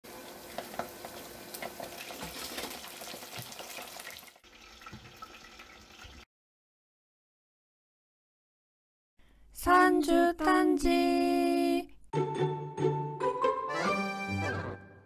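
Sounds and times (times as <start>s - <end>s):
chicken deep-frying in oil: 0.0s - 6.3s.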